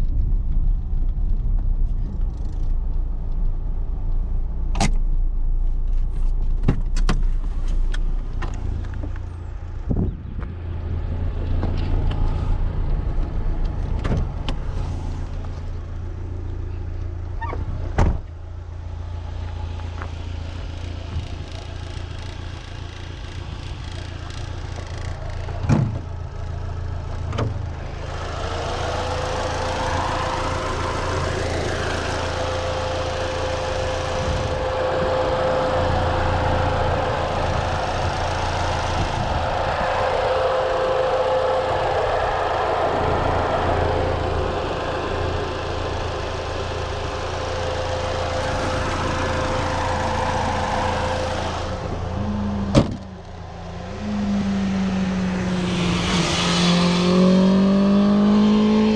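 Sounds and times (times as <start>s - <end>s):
car engine and tyres droning: 0.0s - 58.9s
high whine: 26.5s - 58.9s.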